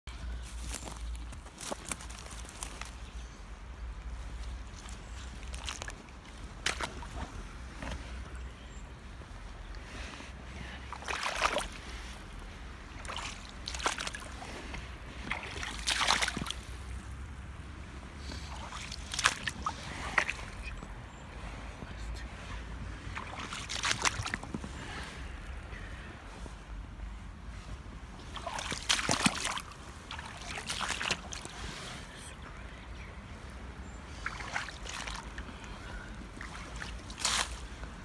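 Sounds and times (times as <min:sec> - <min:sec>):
boots splashing in muddy water: 0:04.7 - 0:08.0, 0:10.9 - 0:11.9, 0:12.9 - 0:17.0, 0:18.3 - 0:20.8, 0:23.0 - 0:24.9, 0:28.1 - 0:31.8, 0:34.2 - 0:38.0.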